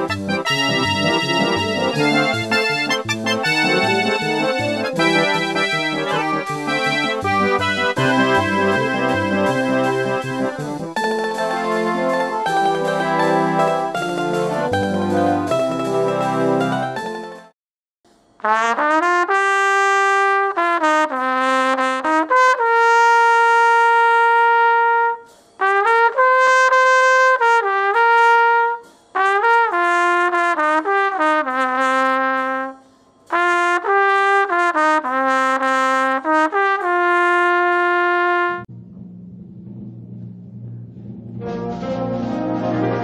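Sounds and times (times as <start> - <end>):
low drum roll: 0.0 - 12.6, 38.5 - 43.0
solo trumpet melody: 0.0 - 17.5, 18.4 - 38.7, 41.4 - 43.0.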